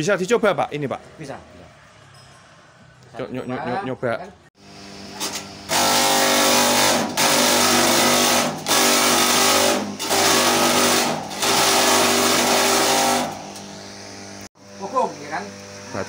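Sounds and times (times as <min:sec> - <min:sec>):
electric motor hum: 0:04.6 - 0:16.0
chaff cutter chopping stalks: 0:05.2 - 0:13.7.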